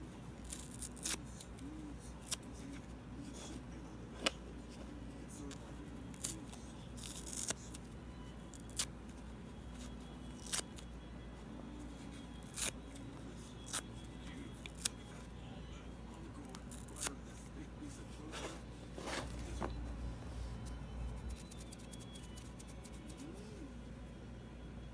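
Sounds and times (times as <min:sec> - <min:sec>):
foam sponge tearing: 0:00.4 - 0:01.2, 0:16.6 - 0:17.1.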